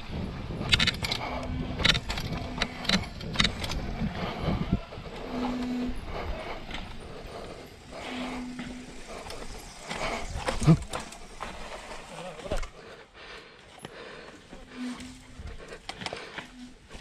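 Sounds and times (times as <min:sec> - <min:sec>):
short steady hums: 0:00.0 - 0:12.8
bike clicks and rattles: 0:00.0 - 0:17.0.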